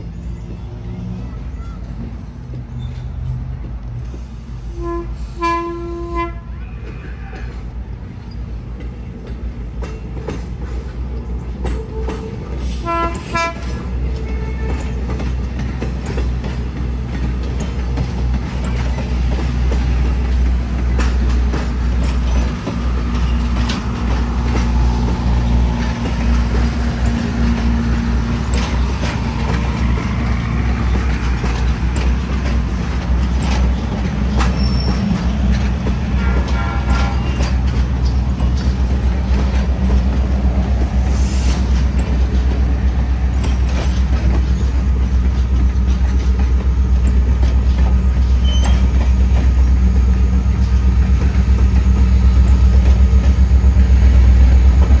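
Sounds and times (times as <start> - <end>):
low locomotive engine rumble: 0.0 - 55.0
train horn blast: 4.6 - 6.8, 11.8 - 15.0, 36.0 - 37.6.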